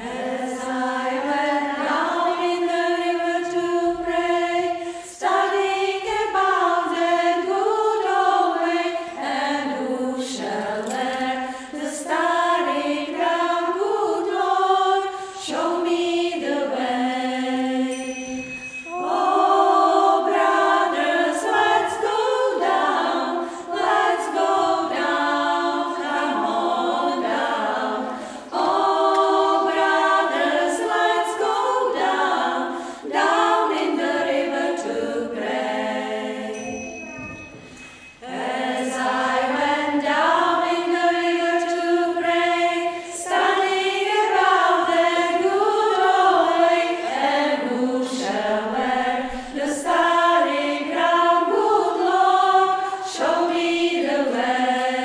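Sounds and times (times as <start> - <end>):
women's choir singing a cappella: 0.0 - 55.0.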